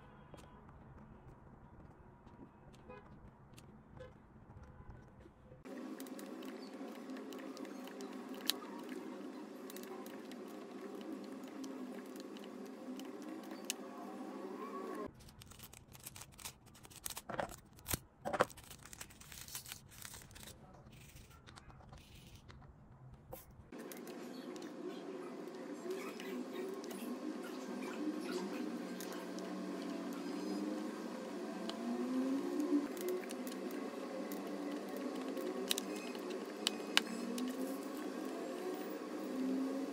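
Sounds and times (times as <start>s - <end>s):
plastic bag crinkling: 15.0s - 22.3s.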